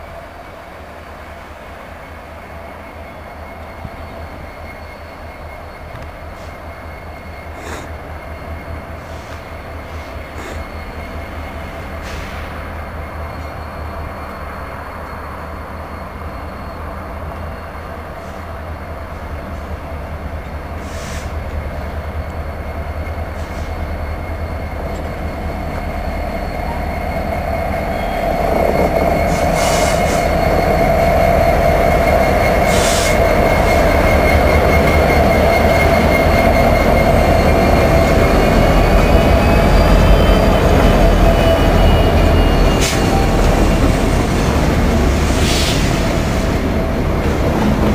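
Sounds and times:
diesel locomotive engine rumble: 0.0 - 47.9
wheel squeal: 20.7 - 47.9.

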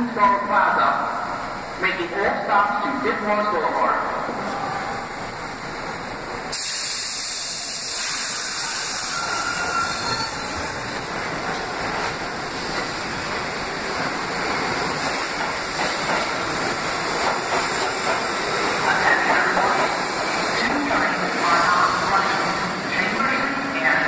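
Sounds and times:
train running and wheel noise: 0.0 - 24.0
hiss of air: 6.4 - 10.2.

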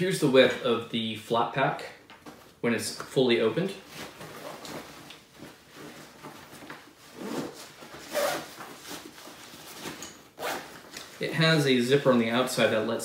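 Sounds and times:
fabric rustling: 3.8 - 11.6
zipper scraping: 7.1 - 9.1, 9.8 - 10.8.

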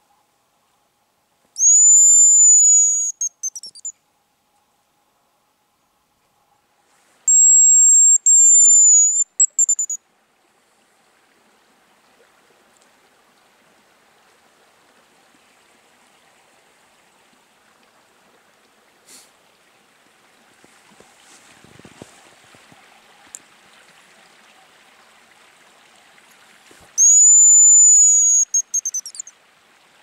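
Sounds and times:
faint steady hiss: 0.0 - 30.0
high thin decoy whistles: 1.6 - 3.9, 7.3 - 10.0, 27.0 - 29.3
quick short whistle notes: 1.6 - 3.9, 7.3 - 10.0, 27.0 - 29.3.

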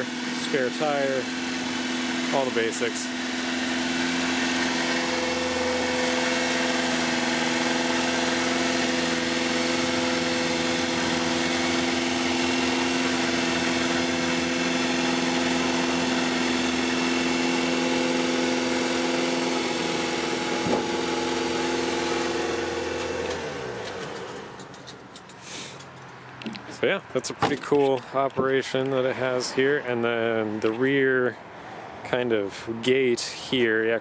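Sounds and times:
hydraulic pump humming whine: 0.0 - 25.3.

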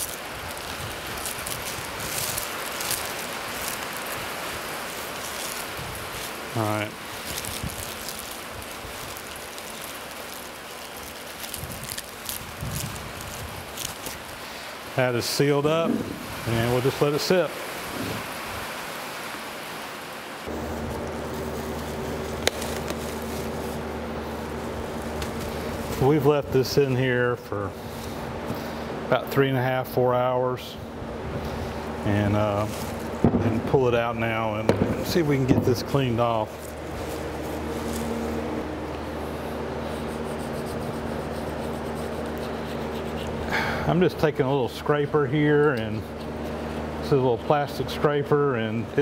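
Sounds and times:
plastic bag crinkling: 0.0 - 17.4, 20.5 - 26.2, 32.3 - 38.7
low machine hum: 0.0 - 49.0.

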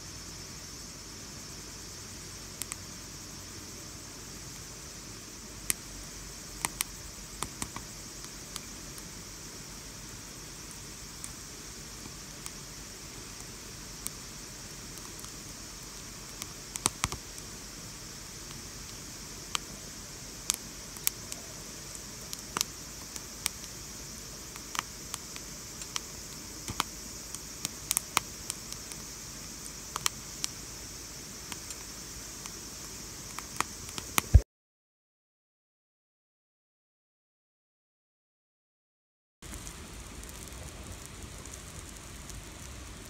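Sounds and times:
fire hissing: 0.0 - 34.4, 39.4 - 43.0
wood fire crackling and popping: 5.6 - 30.6, 31.2 - 34.4, 39.4 - 43.0.

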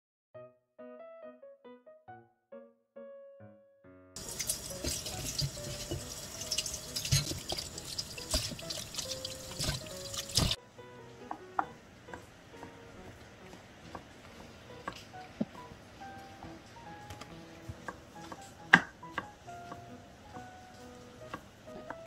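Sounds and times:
running water hissing: 4.2 - 10.6
water splashes and drips: 4.2 - 10.6
knife tapping on cutting board: 17.1 - 19.9.

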